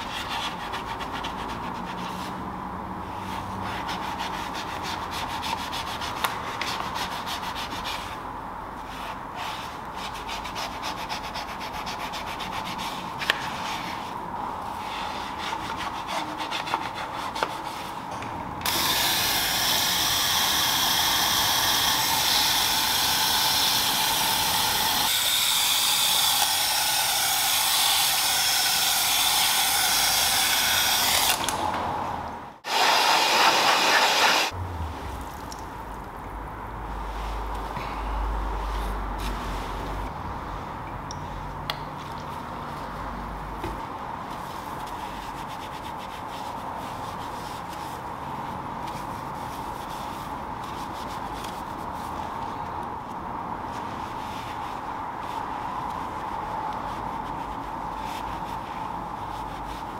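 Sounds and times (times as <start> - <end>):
brush scrubbing a wheel: 3.3 - 8.2, 8.8 - 18.0, 32.7 - 34.6, 44.3 - 52.6, 53.7 - 59.9
pressure washer spray hissing: 32.7 - 34.5.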